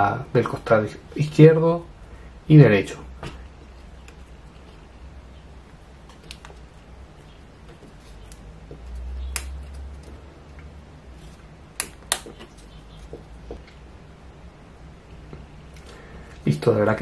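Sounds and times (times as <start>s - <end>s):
wooden pieces clicking and tapping: 11.8s - 13.8s.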